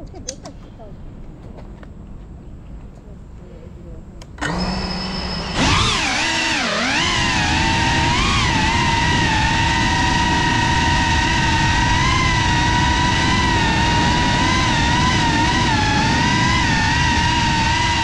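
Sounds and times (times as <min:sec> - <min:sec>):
drone motors whining: 0:04.4 - 0:18.0.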